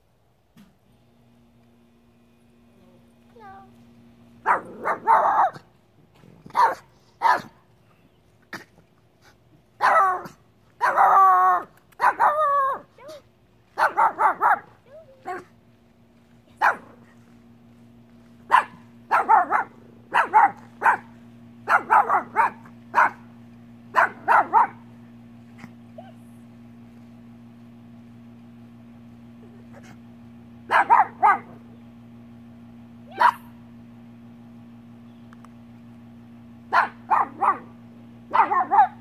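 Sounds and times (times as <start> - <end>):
dog barking and yipping: 4.4 - 5.7, 6.5 - 7.6, 9.8 - 13.2, 13.8 - 15.5, 16.6 - 17.0, 18.5 - 23.3, 23.9 - 24.8, 30.7 - 31.6, 33.1 - 33.5, 36.7 - 37.7, 38.3 - 39.0.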